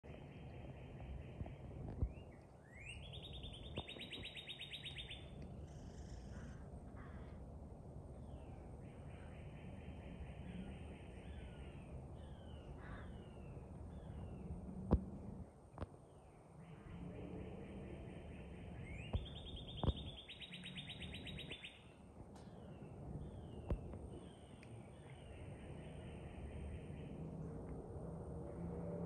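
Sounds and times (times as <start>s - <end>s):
crows cawing: 6.3s - 7.4s, 12.8s - 13.2s.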